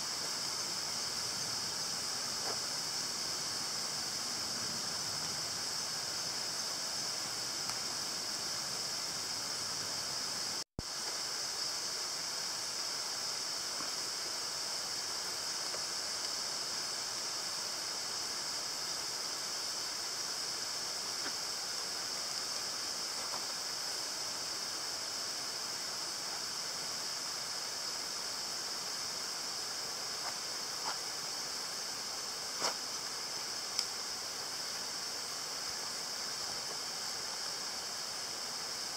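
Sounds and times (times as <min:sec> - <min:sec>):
insect chorus hissing: 0:00.0 - 0:38.9
faint ticks: 0:15.6 - 0:16.4, 0:33.7 - 0:34.0.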